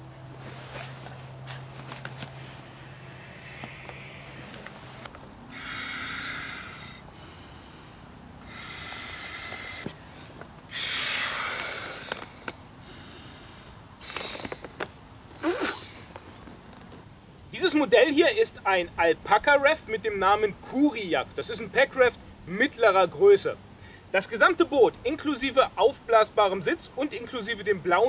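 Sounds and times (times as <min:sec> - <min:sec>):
air puffs into inflation valve: 0:14.0 - 0:14.8.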